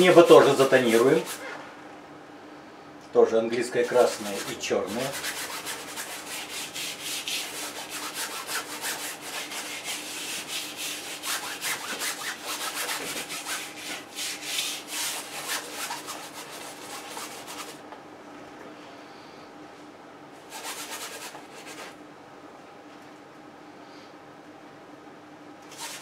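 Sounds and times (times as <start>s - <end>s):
paintbrush scrubbing canvas: 3.8s - 17.8s, 20.5s - 22.0s, 25.7s - 26.0s.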